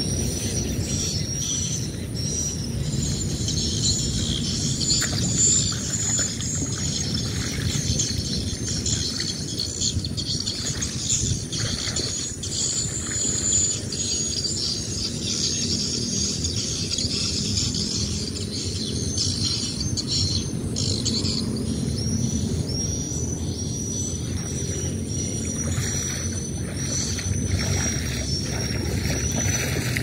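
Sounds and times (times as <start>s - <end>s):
low steady rumble: 0.0s - 30.0s
high chirping chatter: 24.3s - 30.0s.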